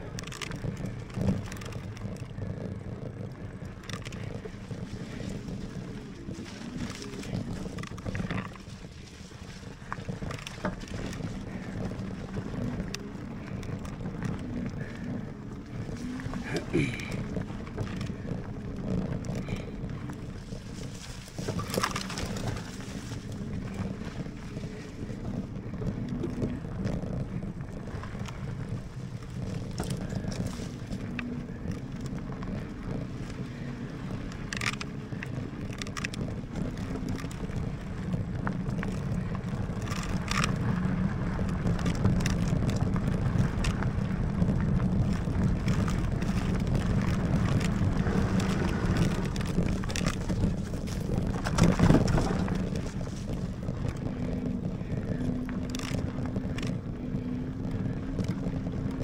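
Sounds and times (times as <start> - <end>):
clicks and rattles: 0.0 - 15.3, 25.8 - 44.1, 45.0 - 59.0
tyre rumble on dirt: 0.0 - 59.0
wind buffeting microphone: 0.0 - 59.0.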